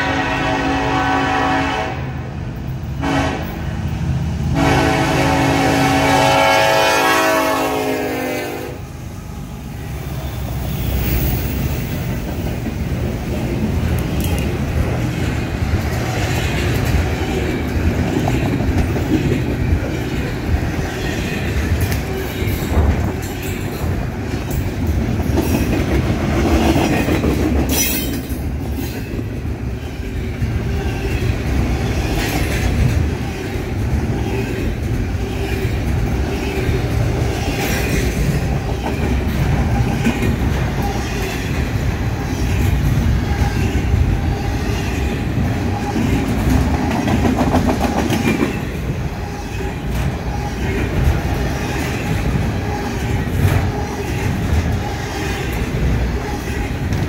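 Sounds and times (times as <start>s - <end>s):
freight train rumbling past: 0.0s - 57.0s
train wheels clacking on rail joints: 11.5s - 57.0s.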